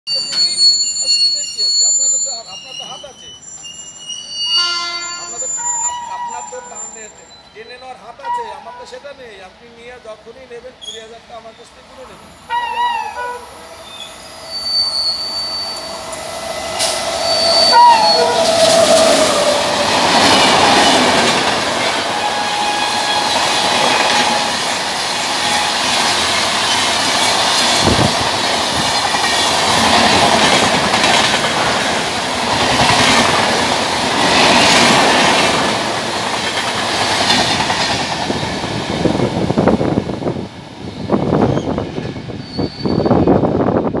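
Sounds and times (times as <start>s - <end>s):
locomotive horn: 4.5s - 6.8s, 17.2s - 19.5s, 22.0s - 26.0s
train wheels rushing past: 12.0s - 43.9s
wheels clacking over rail joints: 16.1s - 39.0s.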